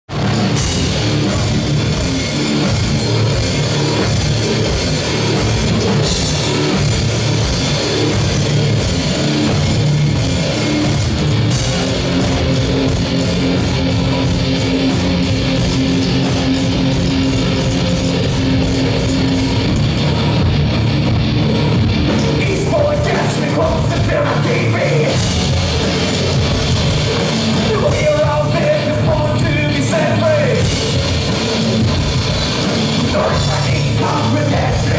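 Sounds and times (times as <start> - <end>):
live rock band playing: 0.1 - 34.9
person singing: 27.6 - 30.7, 33.1 - 34.9.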